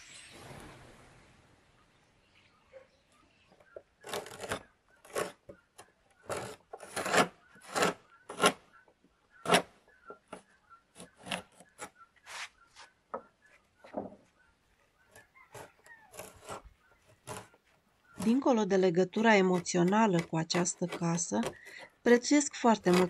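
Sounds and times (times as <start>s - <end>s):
scraper rasping paint off wood: 6.2s - 8.6s, 15.5s - 23.0s.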